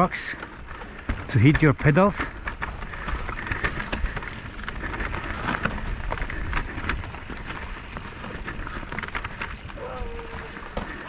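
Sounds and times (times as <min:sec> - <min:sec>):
bike clicks and rattles: 0:00.0 - 0:11.0
bike tyres crunching over stones: 0:00.0 - 0:11.0
wind rumble on microphone: 0:02.4 - 0:11.0.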